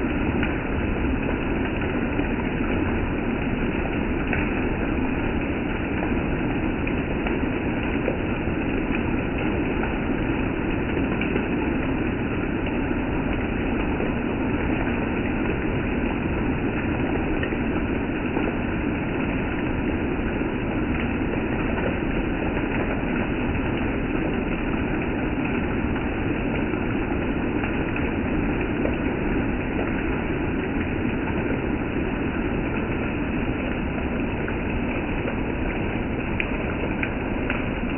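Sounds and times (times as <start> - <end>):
steady rain: 0.0 - 37.9.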